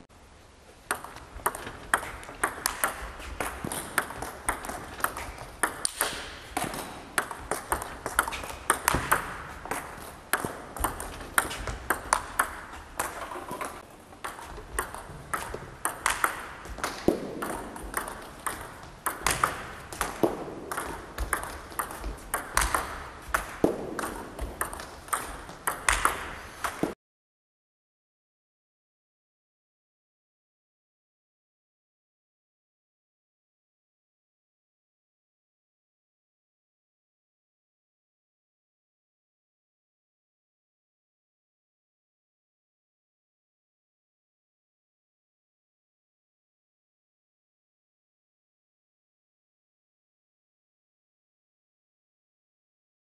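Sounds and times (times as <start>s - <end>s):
table tennis balls hitting bats: 0.8s - 27.0s.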